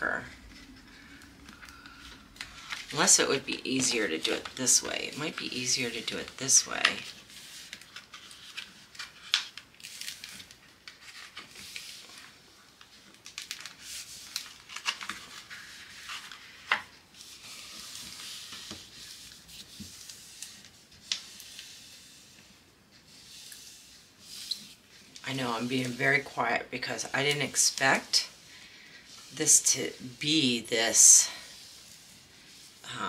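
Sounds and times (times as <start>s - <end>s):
paper rustling and crinkling: 0.2s - 33.0s
hands rubbing paper and film: 13.3s - 33.0s.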